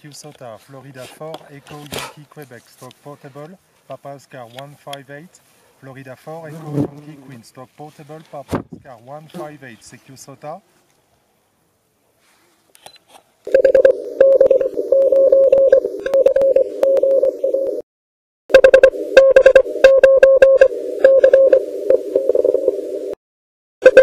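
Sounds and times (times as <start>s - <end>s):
radio crackles: 0.0s - 10.3s
morse code tone: 13.5s - 17.8s, 18.5s - 23.2s.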